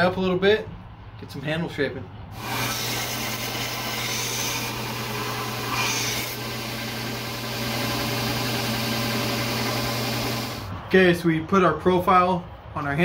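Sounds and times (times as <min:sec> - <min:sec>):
belt sander motor hum: 0:02.4 - 0:10.7
wood sanding hiss: 0:02.4 - 0:10.7.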